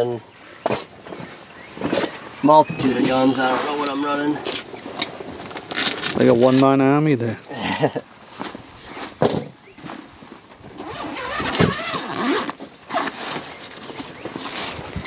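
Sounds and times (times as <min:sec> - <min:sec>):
zipper and fabric rustling: 0:10.7 - 0:15.0.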